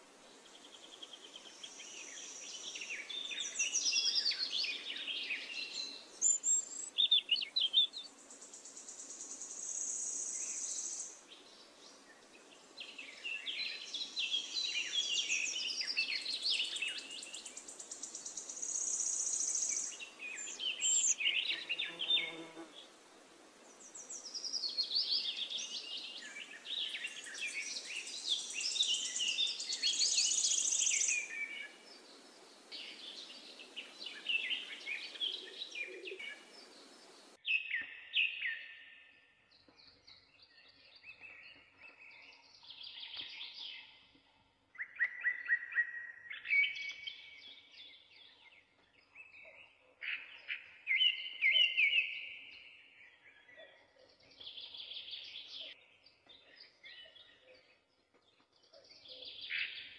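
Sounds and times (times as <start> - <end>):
small birds chirping: 0.0 - 59.9
steady hiss: 8.1 - 11.2.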